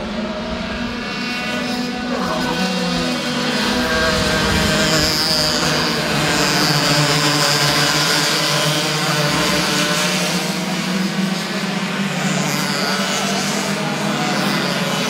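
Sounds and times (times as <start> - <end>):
racing kart engines at speed: 0.0 - 15.0.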